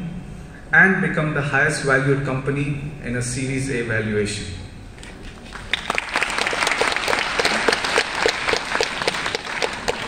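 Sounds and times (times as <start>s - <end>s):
audience applauding: 5.2s - 10.0s.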